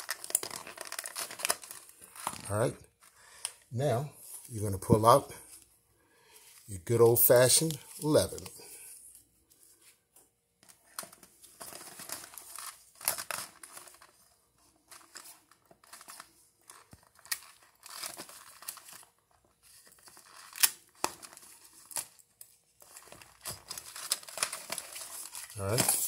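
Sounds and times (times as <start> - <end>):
work gloves rustling: 3.8 - 16.9, 19.5 - 26.0.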